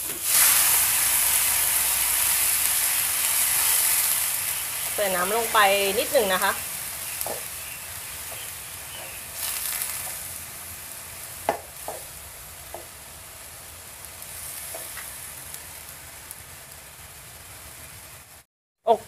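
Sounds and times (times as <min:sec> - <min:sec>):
chicken sizzling in a frying pan: 0:00.0 - 0:18.4
spatula scraping and tapping a pan: 0:07.2 - 0:07.5, 0:08.2 - 0:10.2, 0:11.5 - 0:12.1, 0:14.6 - 0:15.1.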